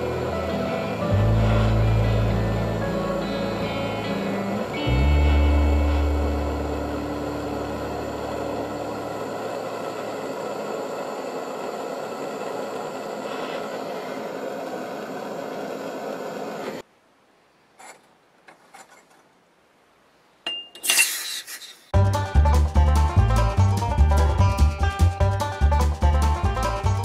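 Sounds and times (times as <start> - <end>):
gas torch flame hissing: 1.1 - 2.7, 5.3 - 16.8, 20.8 - 21.9.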